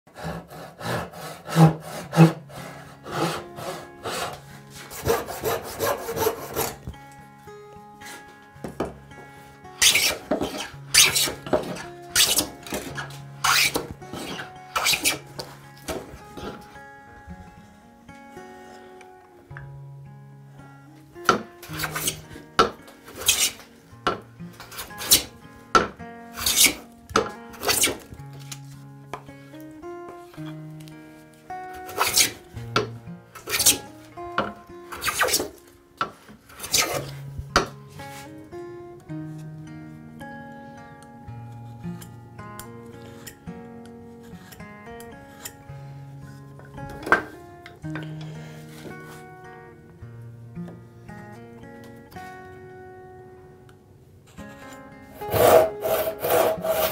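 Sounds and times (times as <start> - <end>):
hand saw cutting wood: 0.1 - 6.8, 9.8 - 16.6, 21.3 - 23.7, 24.7 - 25.3, 26.4 - 26.8, 27.6 - 28.1, 31.8 - 32.4, 33.4 - 33.9, 34.9 - 35.6, 36.5 - 37.2, 55.2 - 56.9.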